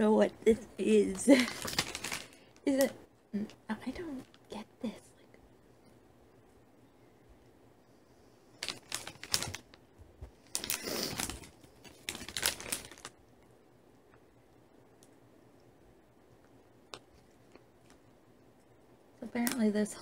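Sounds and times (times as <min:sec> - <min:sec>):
plastic packaging crackling: 0:01.2 - 0:02.9, 0:08.6 - 0:13.2.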